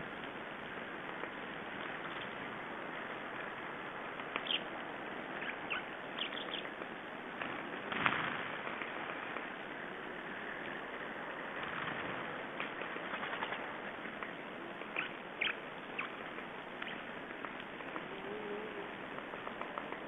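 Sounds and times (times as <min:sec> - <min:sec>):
steady hiss: 0:00.0 - 0:20.0
songbirds calling: 0:04.1 - 0:07.0, 0:12.6 - 0:20.0.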